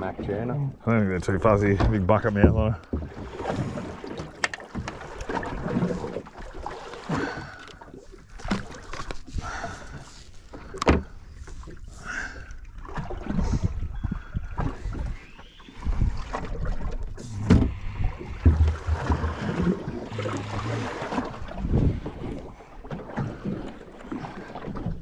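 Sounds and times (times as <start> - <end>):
water surging against hull: 0.0 - 25.0
wind on microphone: 13.2 - 22.6.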